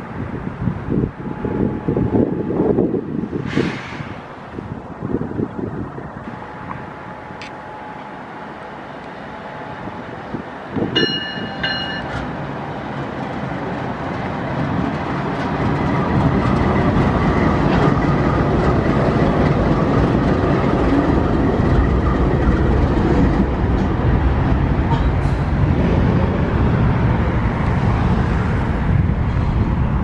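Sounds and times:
diesel locomotive engines rumbling: 0.0s - 30.0s.

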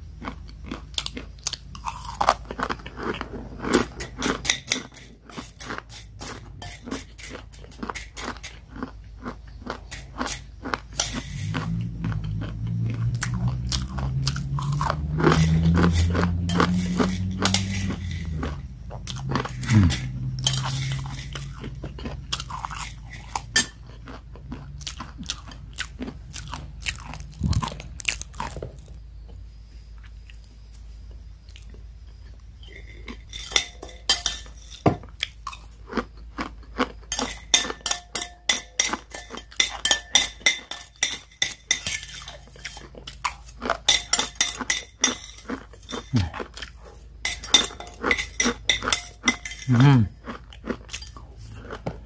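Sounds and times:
crunchy noodles being chewed: 0.0s - 52.0s
metal spoon scraping ceramic plate: 3.7s - 8.9s, 9.7s - 23.8s, 32.6s - 35.0s, 37.1s - 49.9s, 50.8s - 51.9s.

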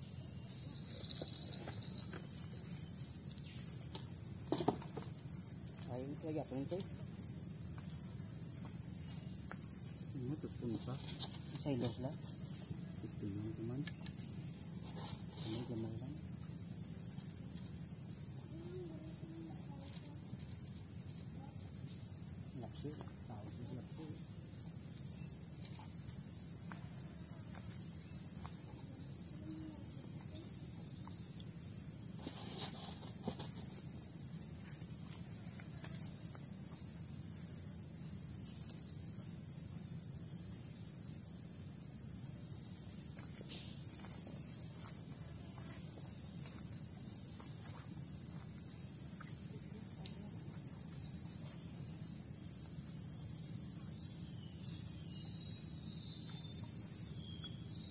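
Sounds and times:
high-pitched insect drone: 0.0s - 57.9s
faint knocks and rustles: 3.5s - 5.9s, 10.6s - 12.8s, 32.1s - 34.0s.

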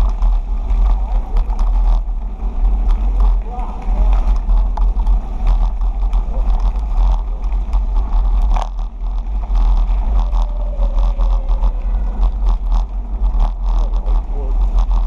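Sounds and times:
bicycle tyres rolling on gravel: 0.0s - 15.0s
bike clicks and rattles: 0.0s - 15.0s
wind rumble on microphone: 0.0s - 15.0s.

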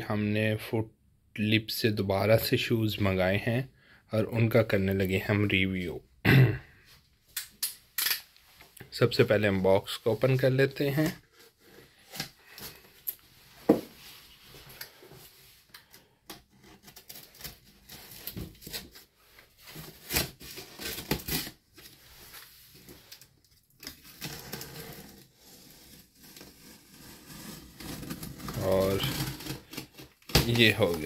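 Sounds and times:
tape tearing: 16.6s - 19.1s, 19.7s - 22.4s, 23.1s - 31.0s
cardboard scraping: 23.9s - 31.0s.

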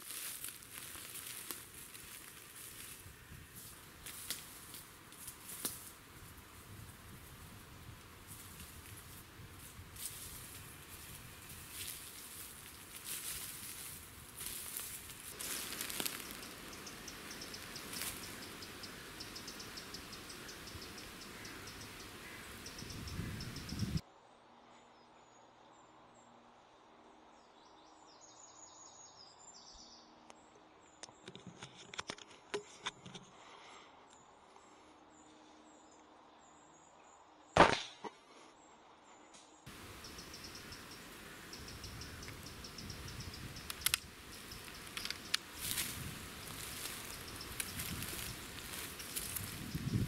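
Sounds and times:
footsteps crunching through dry leaves: 0.0s - 6.0s, 8.2s - 18.8s, 44.4s - 50.0s
bird chirping: 15.4s - 24.0s, 39.7s - 50.0s
sharp clicks and ticks: 43.2s - 45.5s.

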